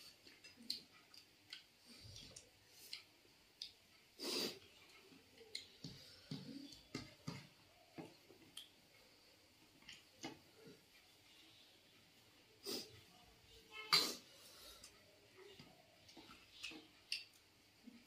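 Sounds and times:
chewing: 0.0 - 8.8, 14.8 - 18.0.

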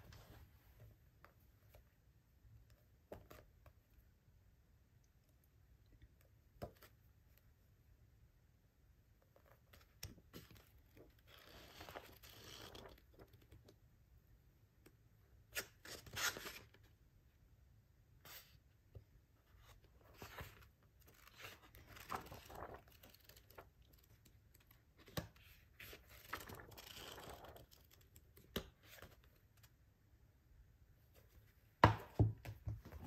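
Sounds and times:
paper pages rustling: 19.6 - 29.4
pages riffled fluttering: 21.1 - 24.2, 25.9 - 28.0
book knocking on desk: 31.8 - 33.0.

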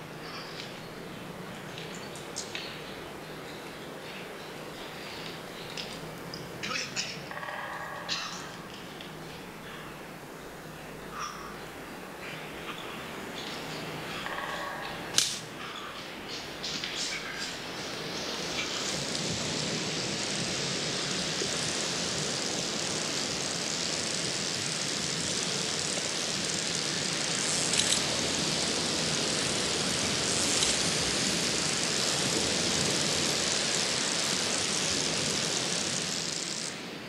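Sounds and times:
ocean surf breaking: 12.4 - 37.0.

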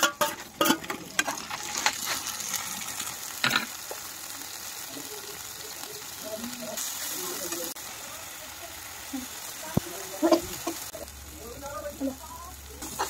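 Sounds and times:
metal knocks and scrapes on pan: 0.0 - 2.1
vegetables sizzling in hot oil: 0.0 - 13.0.

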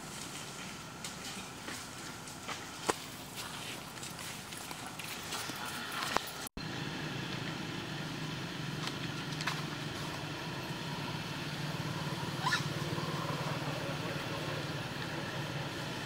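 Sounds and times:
vehicle engine humming: 0.0 - 16.0
short rising squeak: 12.3 - 13.2.

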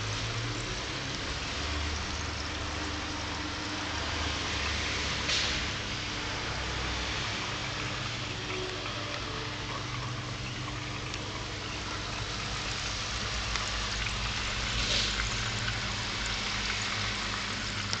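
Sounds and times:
water trickling and splashing: 0.0 - 18.0
low steady hum: 5.7 - 18.0.

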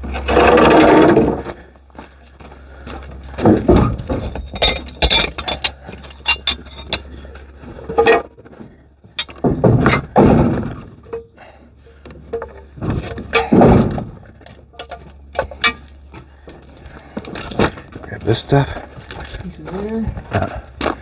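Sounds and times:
metal gear clinking and clanking: 3.7 - 7.3, 9.2 - 10.2, 14.7 - 15.9.

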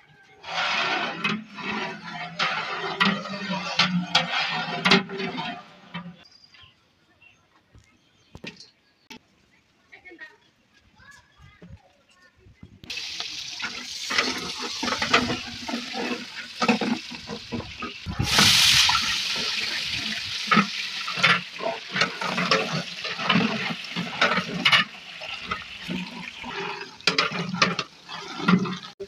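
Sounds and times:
ladle scraping a pot: 0.4 - 6.3, 12.9 - 29.0
onions sizzling in oil: 12.9 - 27.0.

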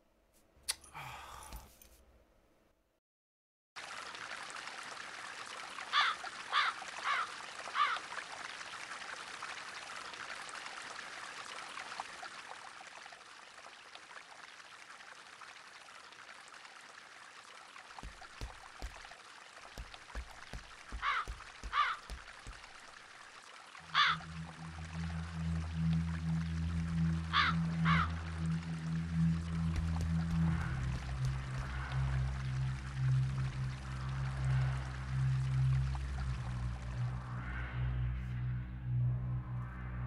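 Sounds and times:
crow cawing: 5.9 - 8.0, 20.9 - 22.3, 23.9 - 24.3, 27.3 - 28.2
soft low thuds: 18.0 - 19.1, 19.8 - 22.9
brook rushing: 18.0 - 23.1.

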